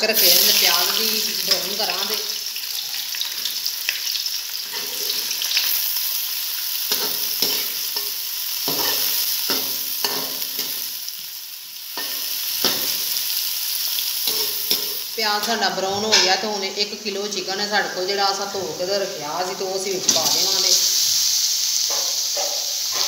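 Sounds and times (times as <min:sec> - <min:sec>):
onions sizzling in a pot: 0:00.0 - 0:23.0
metal spoon scraping a pan: 0:04.6 - 0:05.8, 0:06.8 - 0:10.9, 0:14.2 - 0:15.5.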